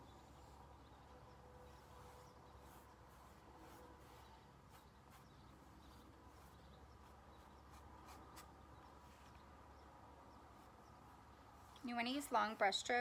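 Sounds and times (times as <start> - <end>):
brush stroking paint on canvas: 0.2 - 9.4, 10.4 - 13.0.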